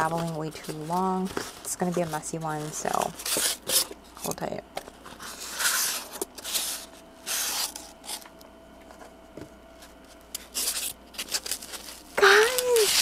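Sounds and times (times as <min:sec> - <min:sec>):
paper rustling and tearing: 0:00.0 - 0:04.3, 0:05.0 - 0:08.3, 0:10.3 - 0:13.0.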